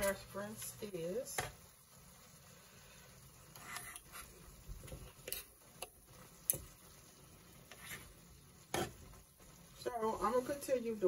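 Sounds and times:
knife and fork clicking on skillet: 4.9 - 6.7.

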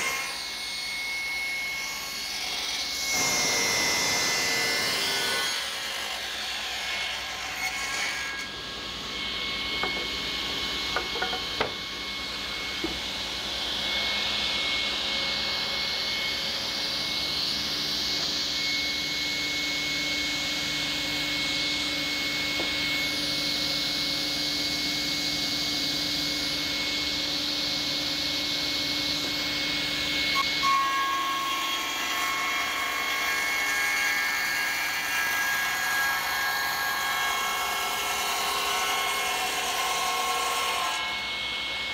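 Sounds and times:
saw blade cutting wood: 0.0 - 11.9, 30.3 - 41.3
panel saw whining: 0.0 - 41.9.

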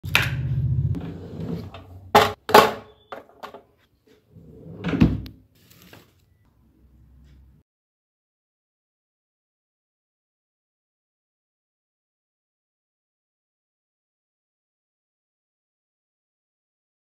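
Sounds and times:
low rumble: 0.1 - 1.0
desk drawer pulled open: 1.0 - 1.9, 4.3 - 6.1.

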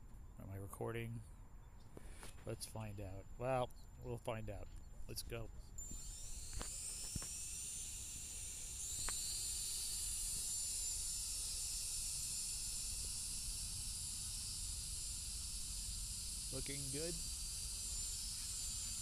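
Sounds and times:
drone motors high whine: 5.6 - 19.0.

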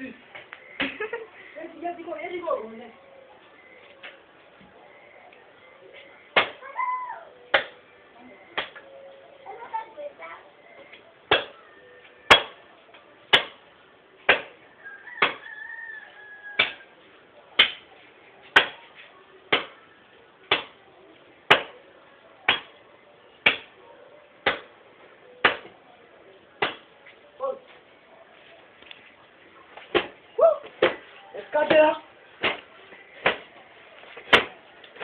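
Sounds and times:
axe chopping wood: 7.5 - 7.8, 12.3 - 12.6, 13.3 - 13.6, 14.3 - 14.5, 15.2 - 15.4, 16.6 - 16.8, 17.6 - 17.8, 21.5 - 21.7, 23.4 - 23.7, 25.4 - 25.7, 26.6 - 26.9, 31.7 - 32.6, 34.2 - 35.0.

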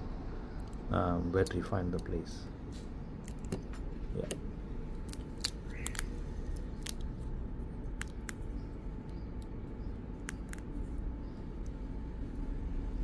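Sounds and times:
steady low hum: 0.0 - 13.0
fingers clicking phone parts: 3.2 - 4.4, 10.2 - 10.7.

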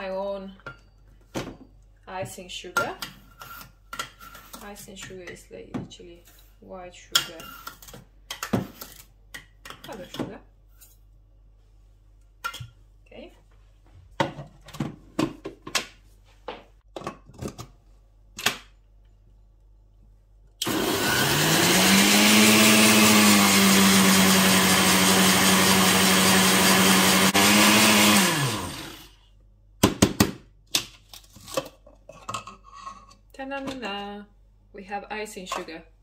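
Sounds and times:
blender motor running: 20.6 - 29.1.

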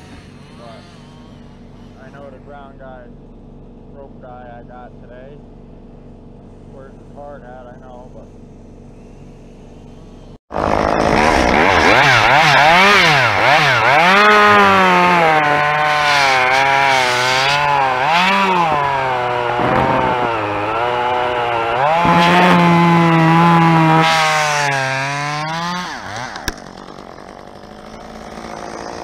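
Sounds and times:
chainsaw cutting wood: 0.0 - 2.4, 8.5 - 29.0.

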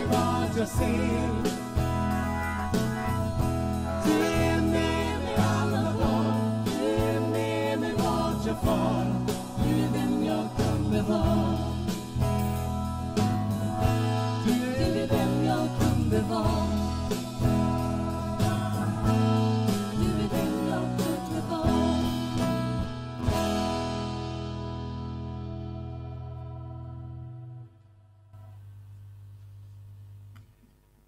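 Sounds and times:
women singing: 0.0 - 2.0, 3.9 - 12.2, 14.4 - 22.7
drum kit beat: 0.0 - 24.0
electric guitar: 0.0 - 27.7
acoustic guitar: 0.0 - 28.6.

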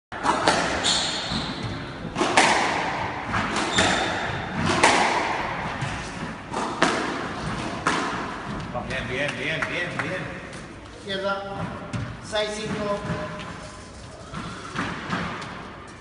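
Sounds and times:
squash ball hits echoing: 0.2 - 9.0, 14.3 - 15.7.

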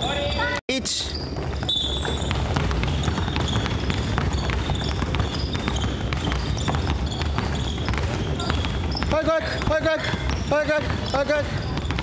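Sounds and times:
basketballs bouncing: 0.0 - 12.0
low rumble of gym hall: 0.0 - 12.0
footsteps on wooden gym floor: 1.2 - 12.0.

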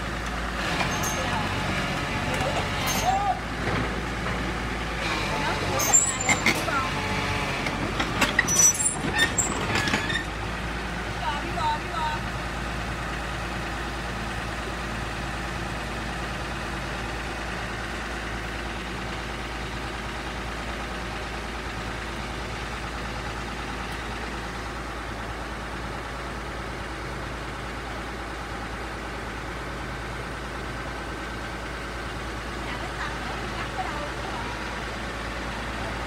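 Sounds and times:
excavator diesel engine idling: 0.0 - 36.0.

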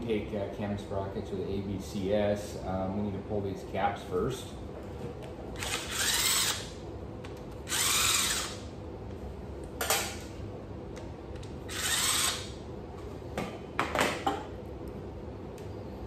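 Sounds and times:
cordless power tool spinning: 5.6 - 6.7, 7.7 - 8.6, 11.7 - 12.5.

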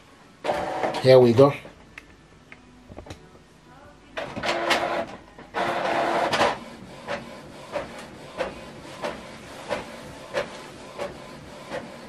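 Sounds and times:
printer motor whirring: 0.4 - 1.0, 4.2 - 12.0
printer clicking: 4.2 - 12.0.

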